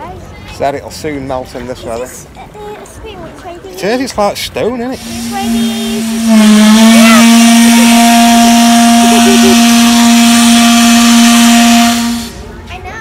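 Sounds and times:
steam hissing: 0:05.0 - 0:12.4
steam whistle blowing: 0:05.0 - 0:12.5.

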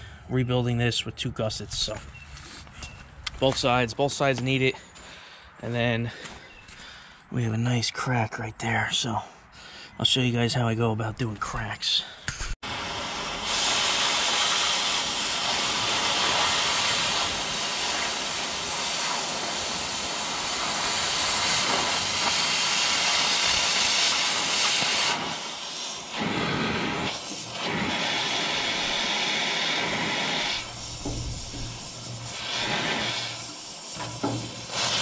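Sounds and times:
cutting torch hissing: 0:12.6 - 0:35.0.

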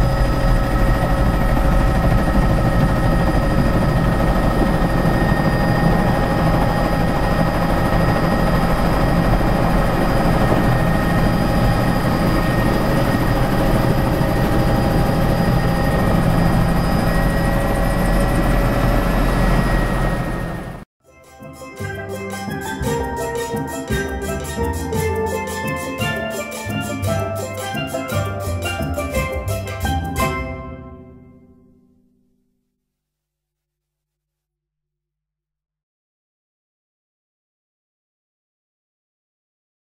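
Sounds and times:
helicopter engine and rotor: 0:00.0 - 0:20.9.

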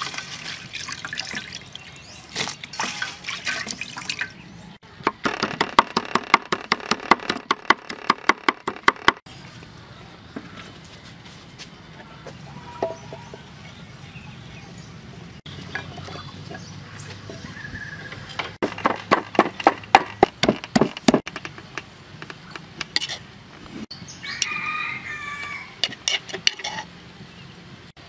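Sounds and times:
pestle pounding in a mortar: 0:18.6 - 0:21.3.

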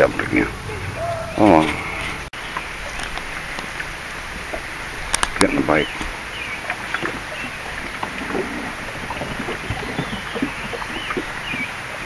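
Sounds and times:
rush of moving air and water: 0:00.0 - 0:12.0
waves slapping against boat hull: 0:02.5 - 0:12.0
bird chirps: 0:09.1 - 0:11.8.

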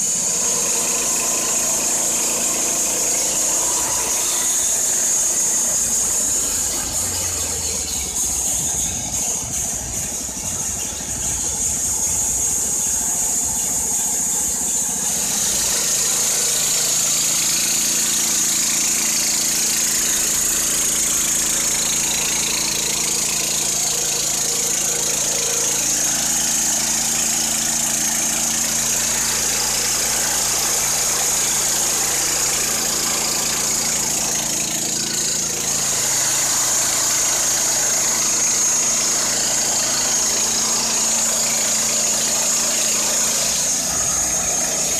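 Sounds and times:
band saw whine: 0:00.0 - 0:44.9
petrol engine running: 0:00.0 - 0:44.9.

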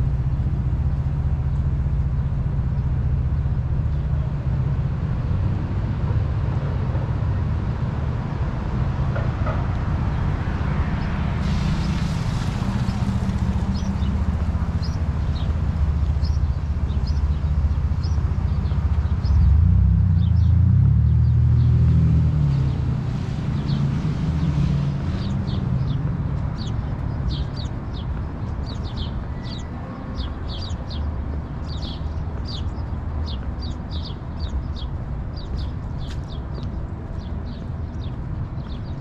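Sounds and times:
low rumble of city traffic: 0:00.0 - 0:39.0
vehicle engine passing: 0:10.6 - 0:16.7, 0:18.0 - 0:26.7
small birds chirping: 0:11.7 - 0:19.6, 0:24.5 - 0:39.0.

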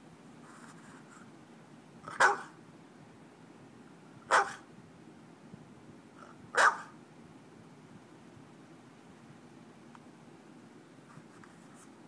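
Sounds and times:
dog barking: 0:02.1 - 0:02.6, 0:04.3 - 0:04.7, 0:06.5 - 0:07.0.

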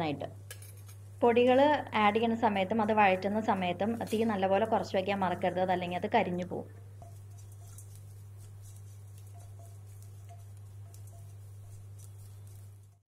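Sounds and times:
steady low hum: 0:00.0 - 0:13.0
spatula stirring in frying pan: 0:07.0 - 0:13.0
frying crackle: 0:07.2 - 0:13.0.

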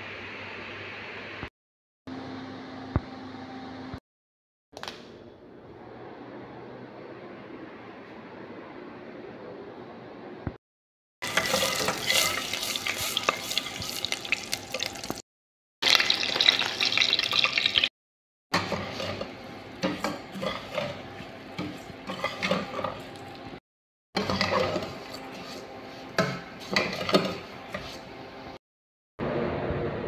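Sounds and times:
metal spoon scraping a pot: 0:11.2 - 0:14.2, 0:18.6 - 0:23.4, 0:24.2 - 0:28.1
butter sizzling in a pot: 0:11.2 - 0:15.2, 0:15.8 - 0:17.9.

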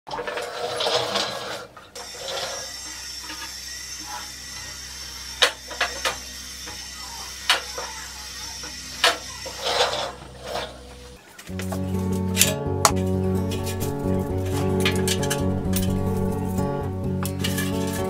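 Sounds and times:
metal rattle: 0:12.3 - 0:18.0
metal trays clanking: 0:12.3 - 0:18.0.

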